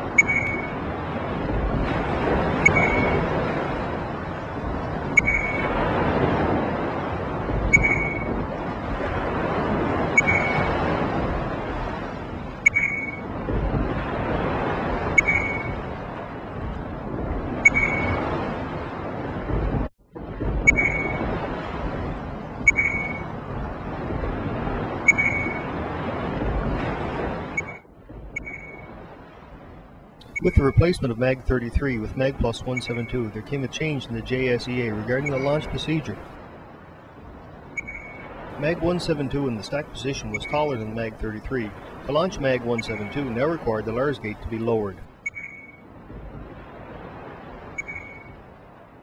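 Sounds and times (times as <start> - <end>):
steady rushing noise: 0.0 - 49.0
short high electronic beep: 0.2 - 0.8, 2.6 - 3.2, 5.2 - 5.7, 7.7 - 8.3, 10.2 - 10.7, 12.6 - 13.2, 15.2 - 15.8, 17.6 - 18.2, 20.7 - 21.2, 22.7 - 23.2, 25.1 - 25.6, 27.6 - 27.8, 28.4 - 28.9, 37.8 - 38.2, 45.2 - 45.8, 47.8 - 48.4
industrial rumble: 15.7 - 26.9, 27.8 - 45.3.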